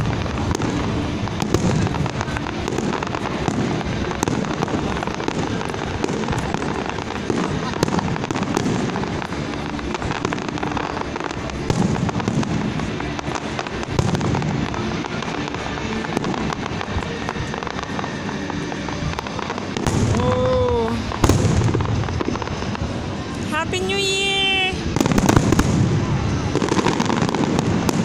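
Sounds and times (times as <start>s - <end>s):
fireworks crackling and banging: 0.0s - 28.0s
music playing: 0.0s - 28.0s.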